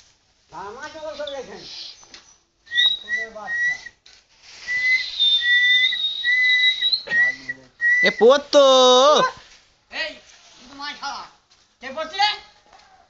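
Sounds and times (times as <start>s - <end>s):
person whistling held notes: 2.7s - 4.0s, 4.6s - 8.3s
person calling out: 8.0s - 9.4s.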